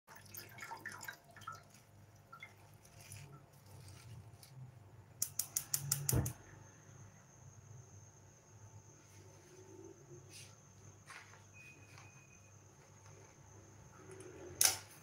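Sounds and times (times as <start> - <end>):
milk dripping into metal pan: 0.1 - 3.8
sharp clicks: 5.2 - 6.4.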